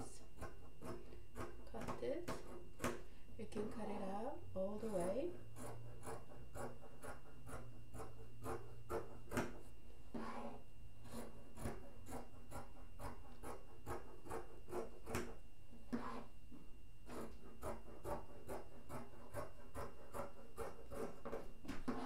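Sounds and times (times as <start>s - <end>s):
scissors cutting fabric: 4.9s - 9.6s, 11.0s - 16.3s, 17.1s - 22.0s.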